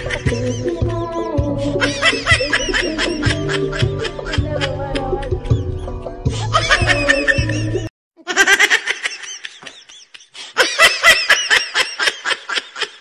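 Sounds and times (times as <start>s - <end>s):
karaoke music with singing: 0.0s - 5.6s
person laughing in high bursts: 1.8s - 13.0s.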